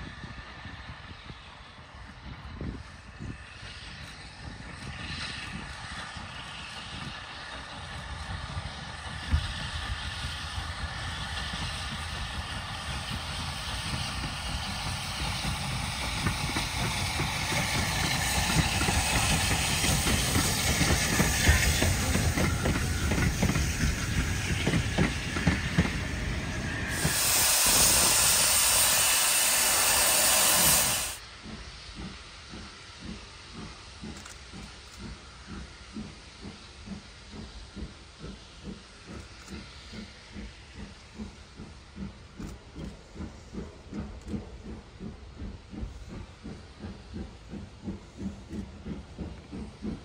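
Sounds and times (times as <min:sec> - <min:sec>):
steam locomotive chuffing: 0:00.0 - 0:50.0
loud steam hiss: 0:00.1 - 0:50.0
coaches rolling on rails: 0:10.8 - 0:35.8.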